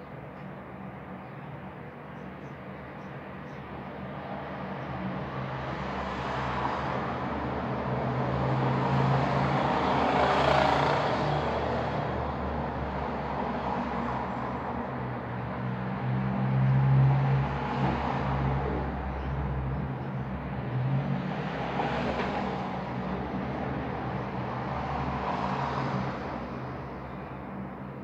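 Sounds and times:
road vehicle passing: 5.6 - 14.7.

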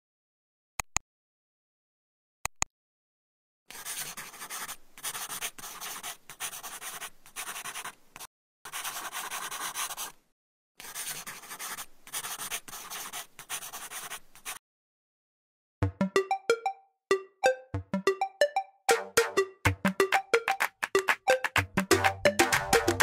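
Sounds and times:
pen scratching on paper: 3.7 - 10.2, 10.8 - 14.6.

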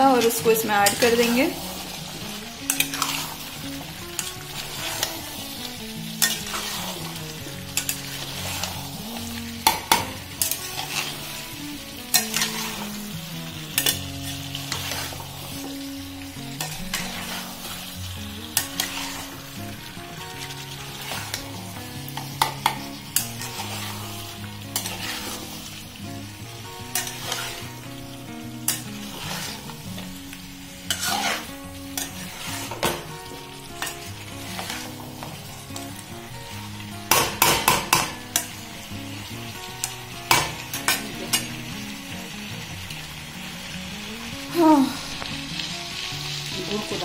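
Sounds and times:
food sizzling: 0.0 - 47.0
spatula scraping steel pan: 2.6 - 3.5, 6.2 - 7.1, 7.7 - 9.0, 12.1 - 12.9, 13.8 - 15.2, 16.6 - 17.7, 18.6 - 19.5, 22.1 - 24.2, 24.8 - 25.6, 26.9 - 27.7, 28.6 - 29.8, 30.8 - 33.1, 33.8 - 35.3.

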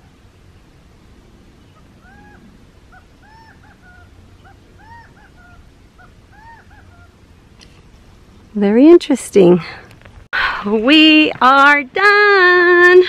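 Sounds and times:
bird calling: 1.6 - 8.6.

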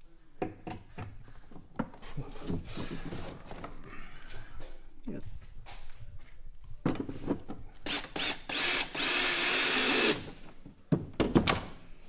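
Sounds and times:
cordless drill whining: 7.8 - 10.3.

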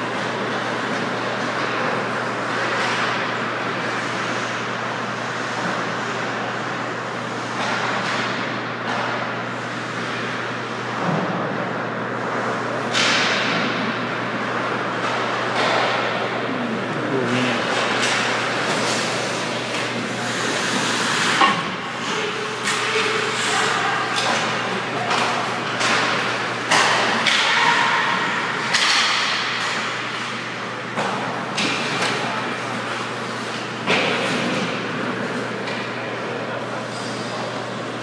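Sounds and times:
hockey sticks and puck clacking: 17.6 - 30.2
skate blades scraping ice: 18.5 - 21.4.

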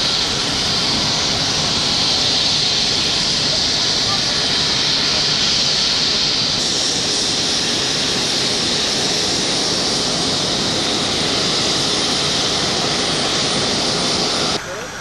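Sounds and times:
helicopter turbine whine: 0.0 - 15.0
rotor rushing: 0.0 - 15.0.

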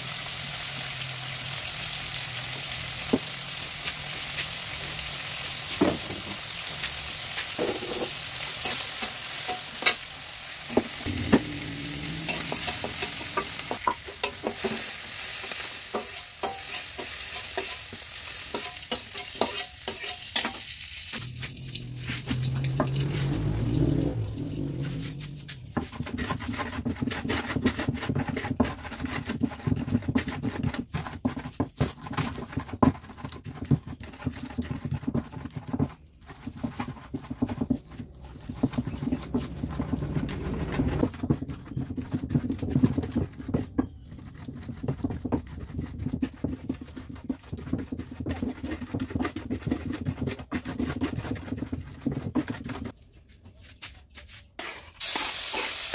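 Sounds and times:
hand rubbing food in a clay mortar: 21.1 - 55.8.

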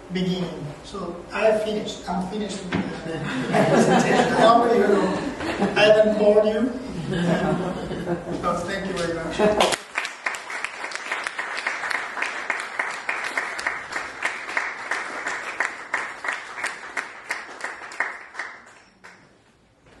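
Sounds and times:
audience applauding: 9.6 - 19.3.

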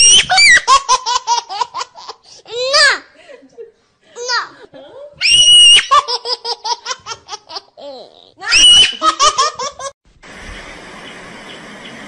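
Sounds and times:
high-pitched laughter: 5.2 - 10.0.

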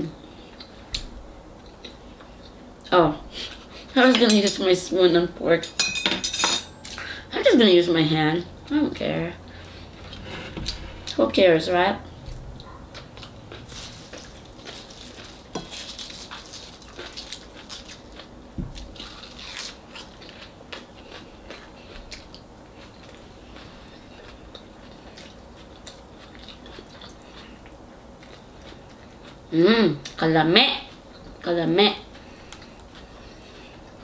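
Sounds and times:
person chewing and crunching: 12.2 - 30.2.

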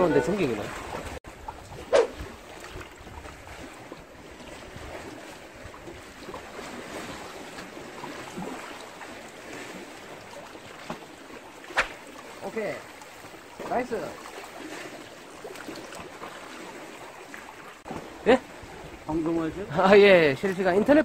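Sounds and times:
wind on microphone: 0.0 - 7.4
sea water washing on breakwater: 0.0 - 21.0.

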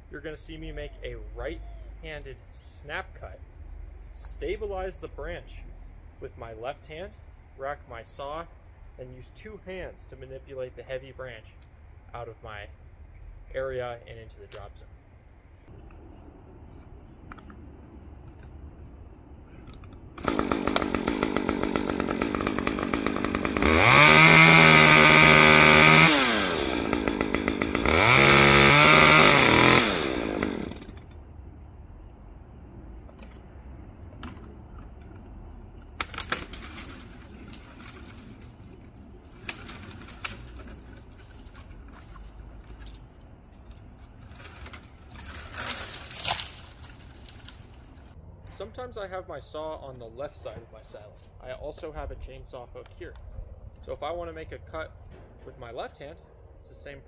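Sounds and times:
chainsaw idling and revving: 20.2 - 31.2, 36.0 - 48.2.

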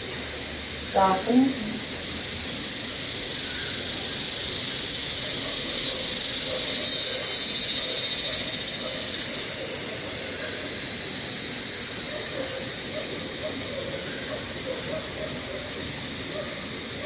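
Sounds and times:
cicadas singing: 0.0 - 17.0.

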